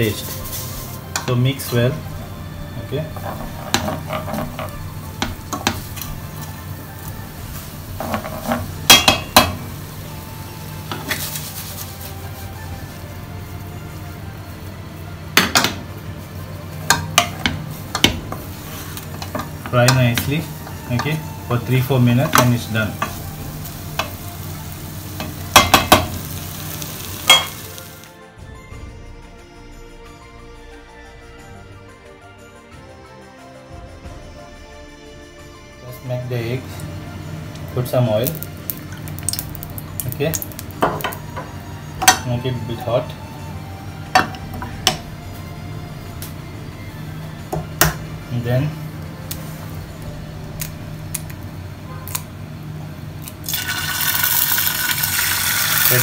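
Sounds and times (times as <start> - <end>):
utensil scraping frying pan: 0.0 - 14.1, 16.8 - 28.1
frying sizzle: 0.0 - 28.2, 36.1 - 56.0
soft background music: 0.0 - 56.0
utensil knocking against pan: 25.2 - 26.2.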